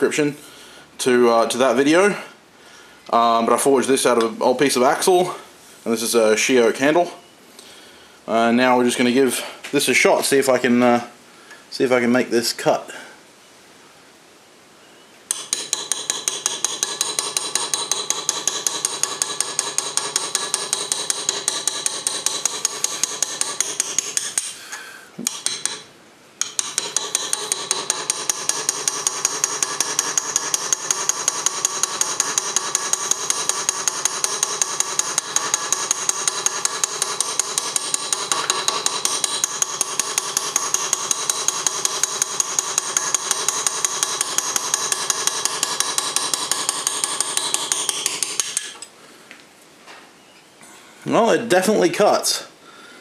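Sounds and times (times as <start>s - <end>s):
hammer tapping metal graver: 15.3s - 24.6s, 25.2s - 48.9s.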